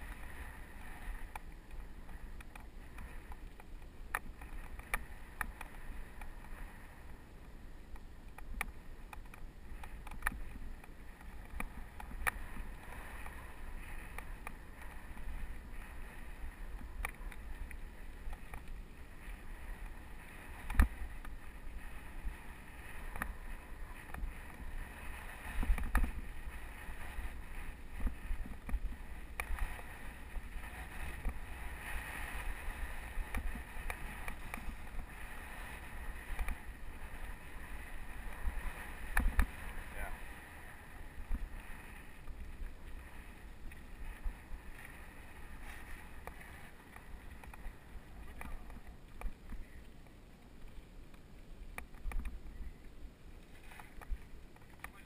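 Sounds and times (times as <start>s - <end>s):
bike rolling over dirt trail: 0.0s - 52.7s
bike rattling over bumps: 8.4s - 49.6s
wind buffeting microphone: 9.6s - 49.8s.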